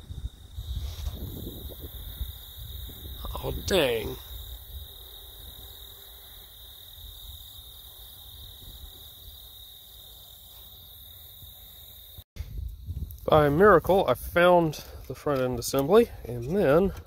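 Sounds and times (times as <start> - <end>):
wind rumble on microphone: 0.0 - 5.9, 8.2 - 9.4, 12.4 - 17.0
insects trilling: 0.0 - 17.0.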